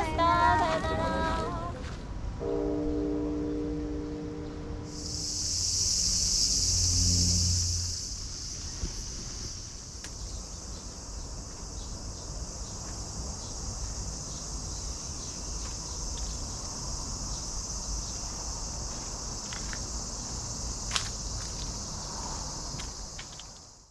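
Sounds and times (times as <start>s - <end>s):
insects chorus: 2.4s - 23.9s.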